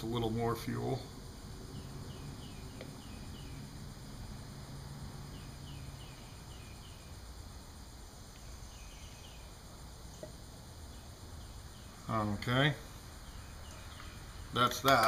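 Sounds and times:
background hiss: 0:00.0 - 0:15.0
bird chirping: 0:01.6 - 0:04.0, 0:05.1 - 0:07.2, 0:08.3 - 0:15.0.

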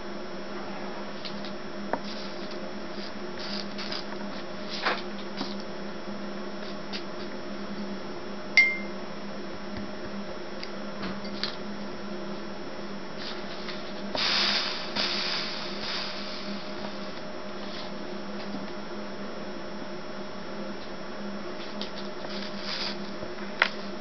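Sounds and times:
steady low hum: 0:00.0 - 0:24.0
flux sizzling hiss: 0:02.0 - 0:04.9, 0:13.2 - 0:18.1, 0:21.6 - 0:24.0.

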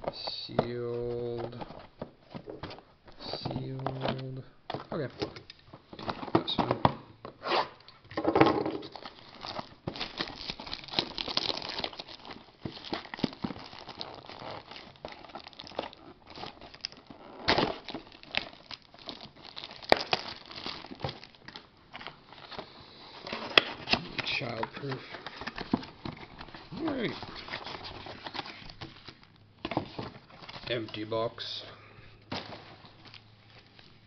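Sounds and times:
shrink wrap crinkling and tearing: 0:08.8 - 0:22.6, 0:23.2 - 0:29.4.

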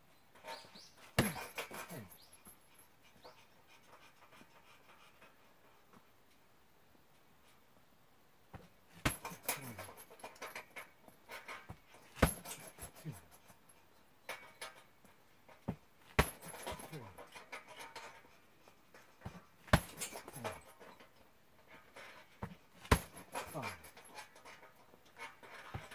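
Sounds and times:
blows hitting punching bag: 0:01.2 - 0:01.6, 0:09.0 - 0:09.5, 0:12.2 - 0:12.7, 0:16.1 - 0:16.8, 0:19.7 - 0:20.3, 0:22.8 - 0:23.5
punching bag chain rattling: 0:01.2 - 0:02.4, 0:09.1 - 0:10.8, 0:12.1 - 0:13.5, 0:16.2 - 0:17.3, 0:19.7 - 0:20.9, 0:22.8 - 0:24.2.

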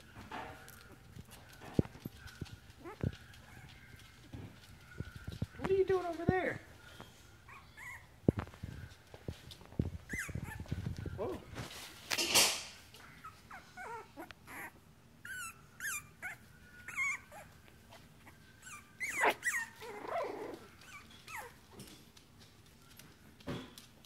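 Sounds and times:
puppies growling: 0:00.0 - 0:05.6, 0:13.0 - 0:21.9
puppies yipping and whining: 0:00.0 - 0:05.6, 0:06.7 - 0:09.0, 0:09.8 - 0:11.7, 0:12.9 - 0:22.0.

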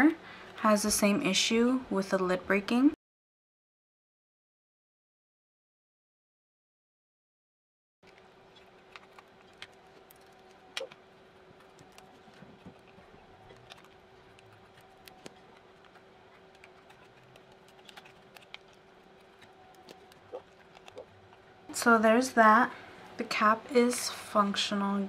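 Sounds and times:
small scissors snipping tape: 0:11.6 - 0:21.0.

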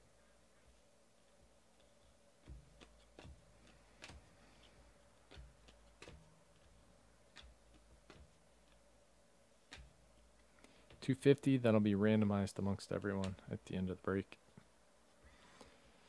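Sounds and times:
trading cards clicking and tapping: 0:01.8 - 0:08.9, 0:09.6 - 0:11.4, 0:13.0 - 0:13.6.

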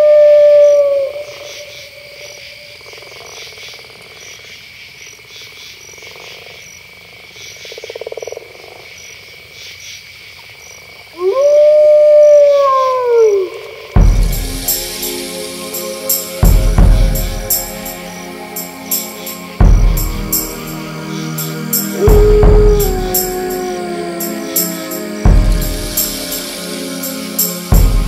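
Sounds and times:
wolf howl: 0:00.0 - 0:02.2, 0:11.2 - 0:14.0, 0:21.9 - 0:26.7
crickets chirping: 0:00.0 - 0:28.0
frogs calling: 0:00.0 - 0:28.0
music with drum hit: 0:14.0 - 0:18.2, 0:19.6 - 0:20.8, 0:21.7 - 0:23.7, 0:24.6 - 0:26.8, 0:27.4 - 0:28.0
croaking trill: 0:21.4 - 0:28.0.

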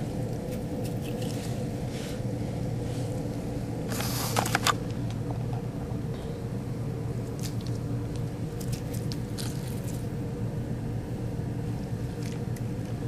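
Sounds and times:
steady low hum: 0:00.0 - 0:13.0
slime squelching: 0:08.5 - 0:10.1.

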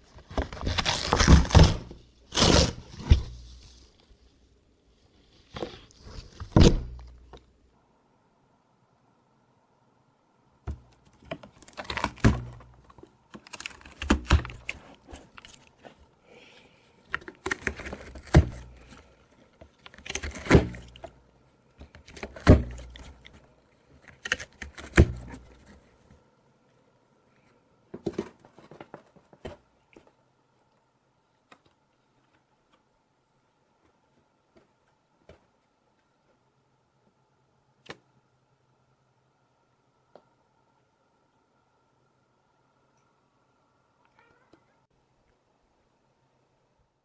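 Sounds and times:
cat tearing cardboard: 0:00.2 - 0:03.9, 0:10.7 - 0:15.9, 0:17.1 - 0:19.2, 0:19.8 - 0:21.2, 0:21.8 - 0:26.0.

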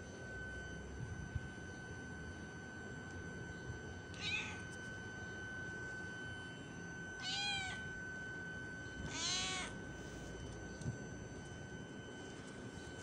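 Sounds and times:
cat meowing: 0:04.2 - 0:04.6, 0:07.2 - 0:07.8, 0:09.1 - 0:09.8.

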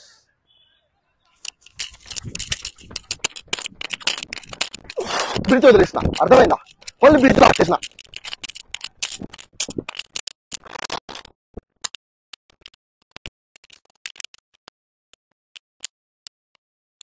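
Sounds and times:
runner's footsteps on a track: 0:01.7 - 0:09.0.

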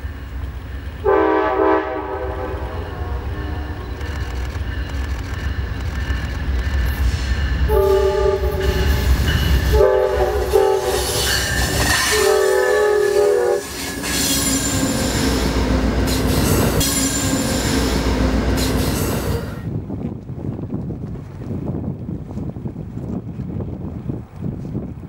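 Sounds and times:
train engines and wheels rumbling: 0:00.0 - 0:25.0
locomotive air horn blasts: 0:01.0 - 0:04.1, 0:07.7 - 0:17.1.

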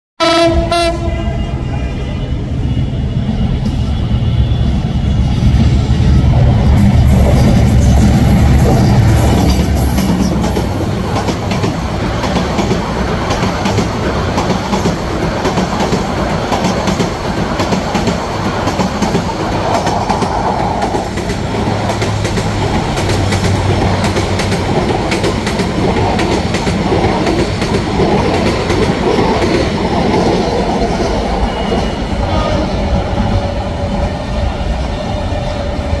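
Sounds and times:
train wheels clickety-clack: 0:03.3 - 0:32.1.

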